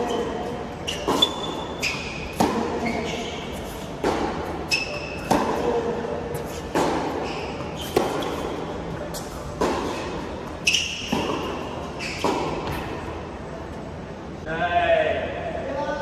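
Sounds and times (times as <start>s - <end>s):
ball bouncing on hard court: 0.0s - 3.3s, 9.5s - 12.9s
shoe squeaks: 0.0s - 5.8s, 6.4s - 13.0s
tennis ball hits: 0.0s - 13.0s.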